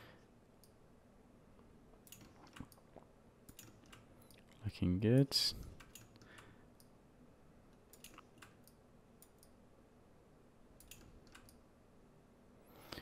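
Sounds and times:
computer mouse clicks: 2.0s - 2.8s, 3.4s - 4.5s, 5.8s - 6.9s, 7.7s - 9.6s, 10.8s - 11.6s.

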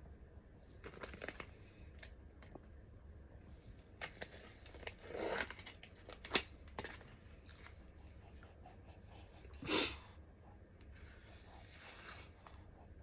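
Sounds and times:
plastic film crinkling and tearing: 0.7s - 2.1s, 4.0s - 7.7s.

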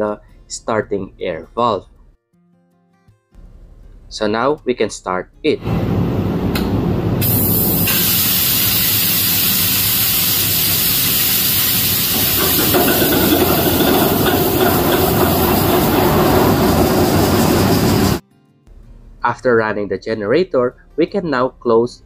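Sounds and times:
hiss of compressed starting air: 7.1s - 18.2s
diesel engine running: 11.6s - 18.2s.

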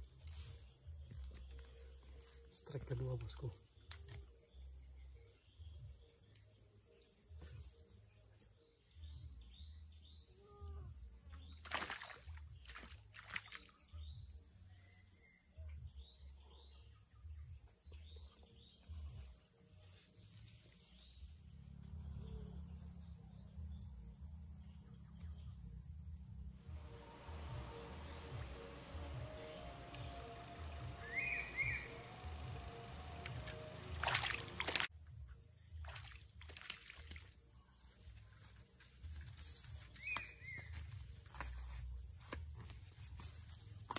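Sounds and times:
insects buzzing: 0.0s - 43.9s
steady hiss: 26.7s - 34.9s
short high chirps: 28.6s - 34.8s.

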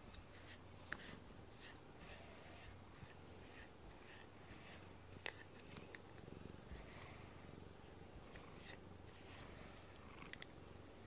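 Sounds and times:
brush strokes on fur: 0.0s - 7.5s, 8.1s - 10.0s
cat purring: 2.0s - 10.8s.

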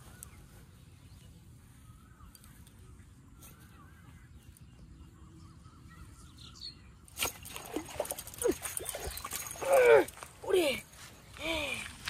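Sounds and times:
faint birdsong: 0.0s - 12.0s
fishing rod strike: 7.1s - 8.9s
fish splashing and thrashing: 7.1s - 10.6s.

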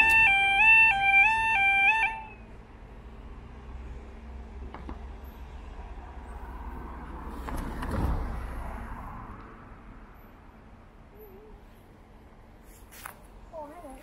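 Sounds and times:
car passing by: 2.6s - 10.7s.

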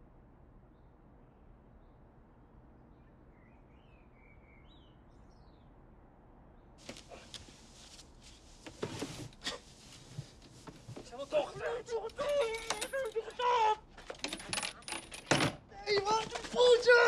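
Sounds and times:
faint bird chirps: 2.9s - 5.8s
rustling scuffle: 6.8s - 15.0s, 15.8s - 17.0s.

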